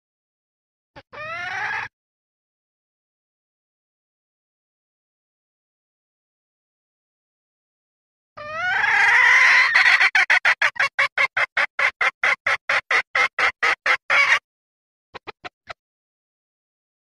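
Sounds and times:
junglefowl hen calling: 0:01.0 - 0:01.9, 0:08.4 - 0:14.4.

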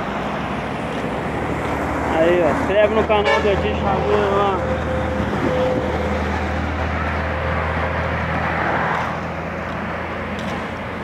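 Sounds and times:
truck engine drone: 0:00.0 - 0:11.0.

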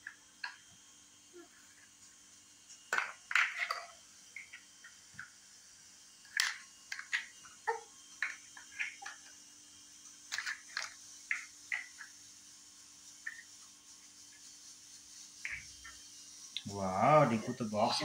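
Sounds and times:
plastic toys clicking and knocking: 0:02.9 - 0:04.6, 0:06.3 - 0:07.4, 0:08.2 - 0:09.3, 0:10.3 - 0:12.2.

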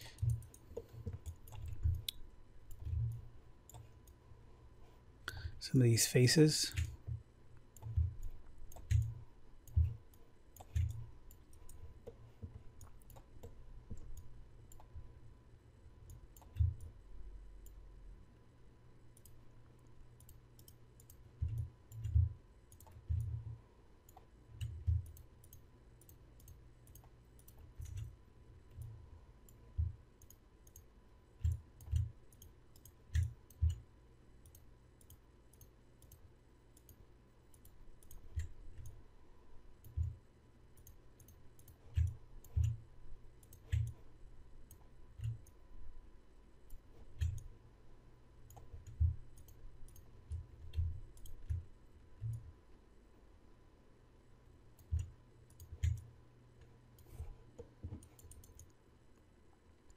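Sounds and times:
computer mouse clicking: 0:00.0 - 0:04.2, 0:06.7 - 0:15.1, 0:16.0 - 0:17.0, 0:19.1 - 0:39.0, 0:39.8 - 0:40.2, 0:40.8 - 0:42.8, 0:43.4 - 0:45.6, 0:46.6 - 0:47.5, 0:48.4 - 0:52.5, 0:54.7 - 0:58.8.

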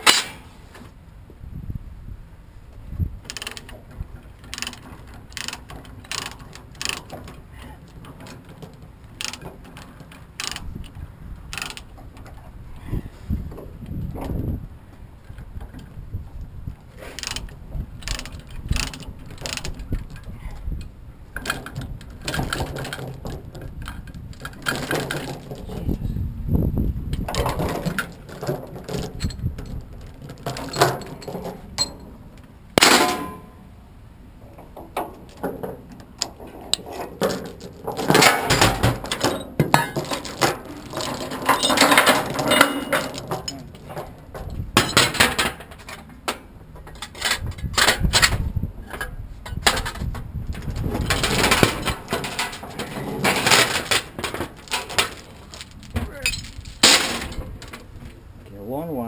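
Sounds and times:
steel chains clanking and rattling: 0:03.2 - 0:12.3, 0:17.1 - 0:20.3, 0:27.3 - 0:32.2, 0:32.8 - 0:33.6, 0:34.6 - 0:46.1, 0:46.8 - 0:57.8.

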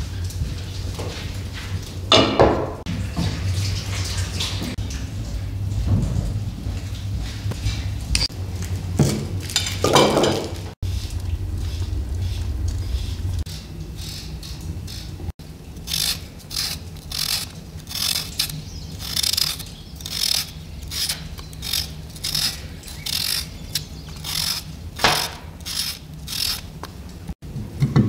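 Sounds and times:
steady low hum: 0:00.0 - 0:27.8
knife scraping potato skin: 0:15.8 - 0:26.7.

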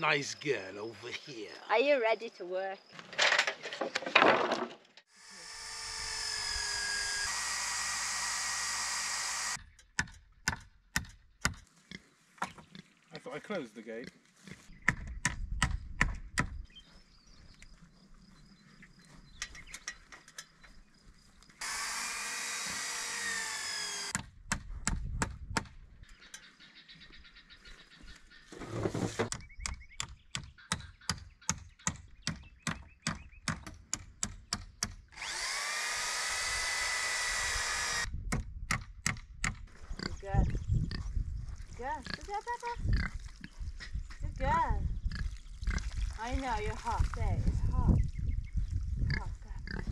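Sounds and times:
power drill whirring: 0:05.1 - 0:09.6, 0:21.6 - 0:24.2, 0:35.1 - 0:38.1
hammer nailing wooden poles: 0:06.0 - 0:11.6, 0:29.3 - 0:39.6.

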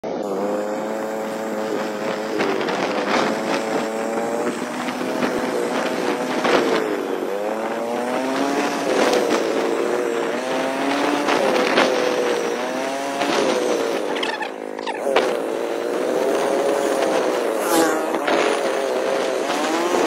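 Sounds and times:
vehicle engine revving while driving: 0:00.0 - 0:20.0.

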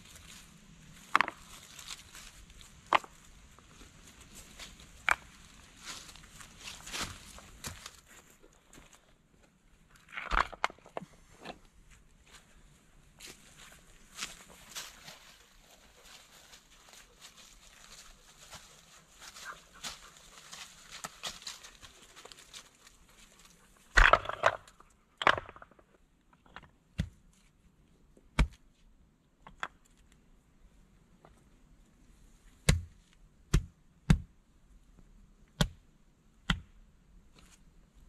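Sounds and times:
rustling in dry leaves: 0:00.0 - 0:08.4, 0:12.3 - 0:23.9
stones clacking together: 0:05.0 - 0:05.4, 0:10.0 - 0:11.1, 0:23.9 - 0:27.2.

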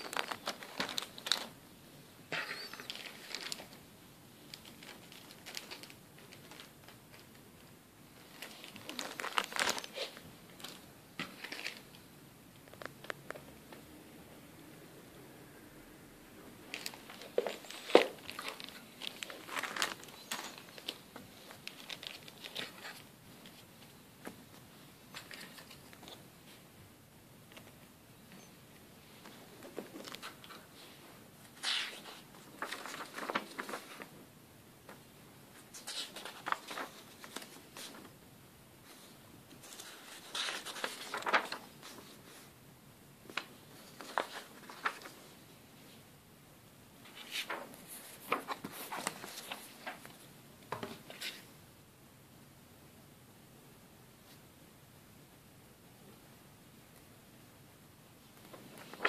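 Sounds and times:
paper rustling: 0:00.0 - 0:01.6, 0:02.3 - 0:03.8, 0:04.4 - 0:07.4, 0:08.2 - 0:12.0, 0:16.7 - 0:26.6, 0:29.2 - 0:34.2, 0:34.9 - 0:38.2, 0:38.8 - 0:42.5, 0:43.3 - 0:45.3, 0:47.0 - 0:51.5, 0:58.3 - 0:59.0
plastic bags crinkling: 0:00.0 - 0:01.6, 0:04.5 - 0:07.2, 0:08.3 - 0:11.8, 0:16.7 - 0:22.9.

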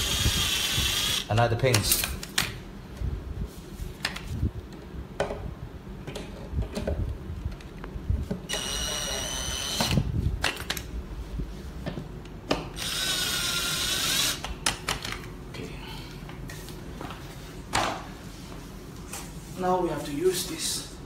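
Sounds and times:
cordless drill driving bolts: 0:00.0 - 0:01.3, 0:08.5 - 0:10.0, 0:12.8 - 0:14.5.

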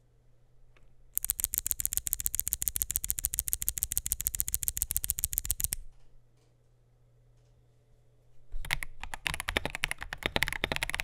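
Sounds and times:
fast typing on mechanical keyboard: 0:01.2 - 0:05.8, 0:08.6 - 0:11.0.

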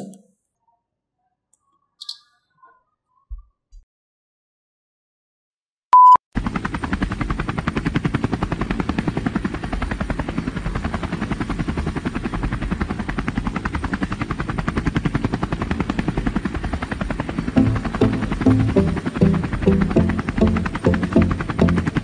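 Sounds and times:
short beep: 0:06.0 - 0:06.2
helicopter rotor sound effect: 0:06.4 - 0:22.0
music: 0:17.6 - 0:22.0.

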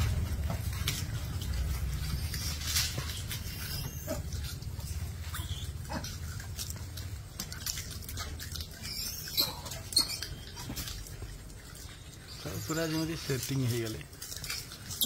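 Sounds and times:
steady low rumble: 0:00.0 - 0:08.2.

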